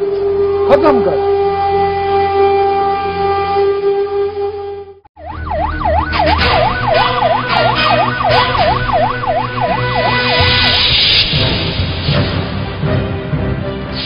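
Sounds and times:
police siren wailing: 0.6s - 4.0s, 5.2s - 11.0s
steady tone: 5.3s - 12.0s.

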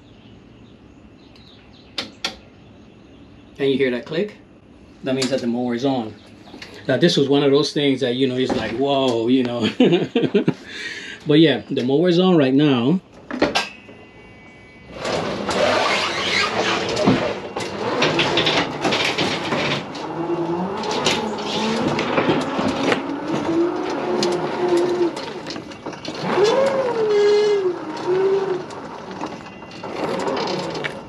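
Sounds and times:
electric motors whining: 13.8s - 31.0s
machine and ramp rattling: 14.8s - 31.0s.

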